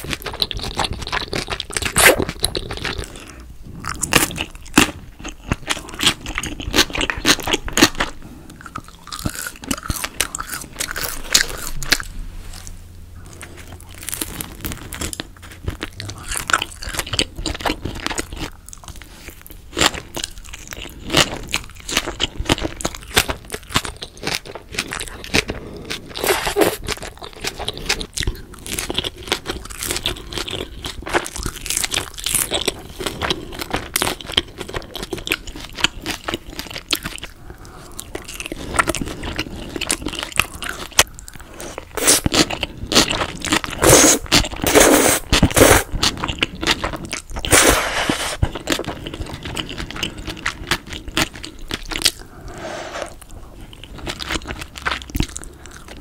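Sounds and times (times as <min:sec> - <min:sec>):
chewing noodles: 0:00.0 - 0:56.0
crisp crunching bites: 0:13.4 - 0:37.3.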